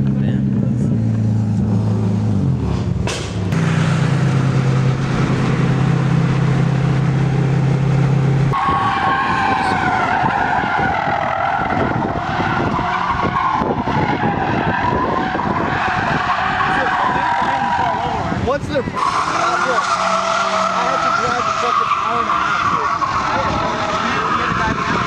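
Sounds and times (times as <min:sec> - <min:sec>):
tyres squealing: 0:08.5 - 0:25.0.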